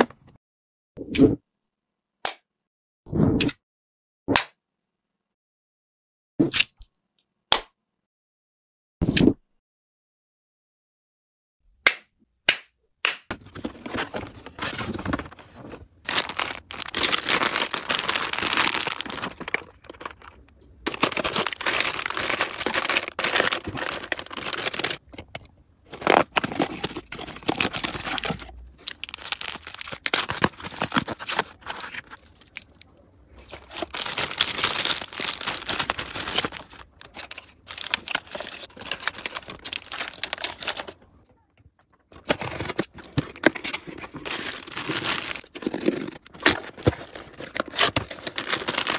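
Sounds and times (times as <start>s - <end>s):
plastic wrappers crinkling: 13.3s - 41.0s, 42.2s - 48.9s
cardboard box tearing: 16.1s - 20.2s, 20.9s - 25.0s, 25.9s - 32.2s, 42.2s - 48.9s.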